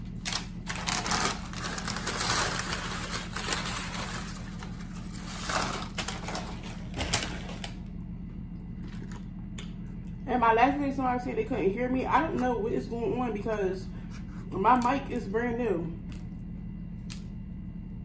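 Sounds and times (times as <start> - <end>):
paper chip bag crinkling: 0.0 - 7.8
steady low hum: 0.0 - 18.0.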